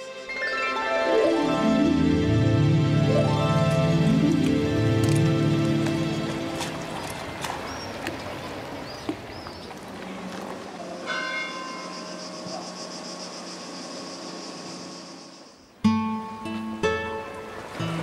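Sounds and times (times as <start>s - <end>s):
church bell ringing: 11.0s - 12.2s.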